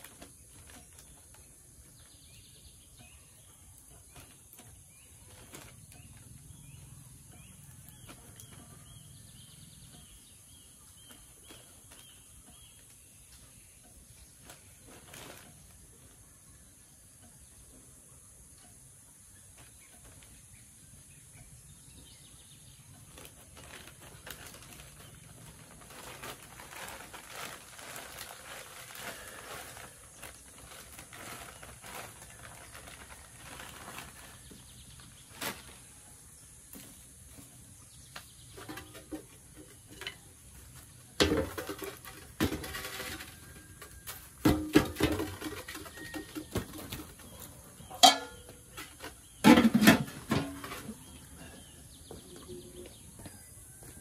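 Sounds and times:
plastic bag rustling: 0.0 - 2.8, 3.8 - 9.8, 14.2 - 16.2, 23.0 - 36.4
knocks and clatters: 41.1 - 47.2.

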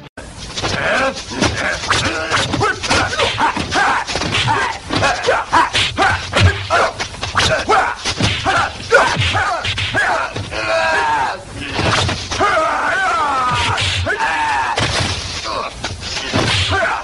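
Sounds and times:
fighters shouting and grunting: 0.2 - 17.0
punch and kick impacts: 0.6 - 10.6, 11.7 - 12.5, 14.8 - 15.4, 16.3 - 16.9.

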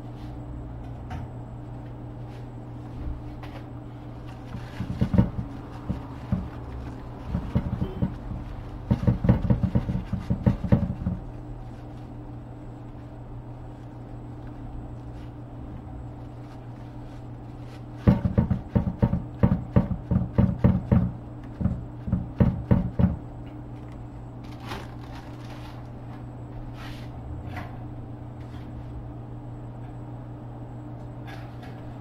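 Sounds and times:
steady low hum: 0.0 - 32.0
loud dull knocks: 4.5 - 11.3, 18.0 - 23.3.

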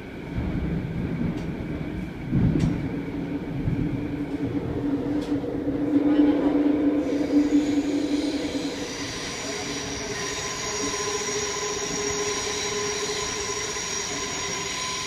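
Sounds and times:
train car rumble: 0.0 - 15.0
high-pitched whine: 3.3 - 15.0.

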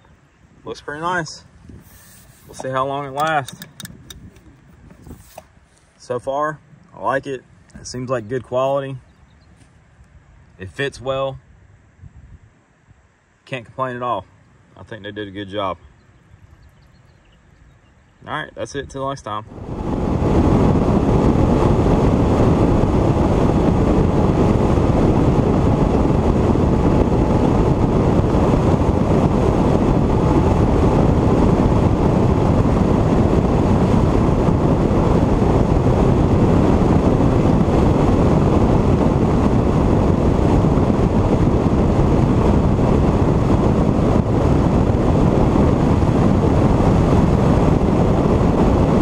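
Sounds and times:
wind on microphone: 0.0 - 13.7, 14.9 - 49.0
hull on water: 1.4 - 6.0.

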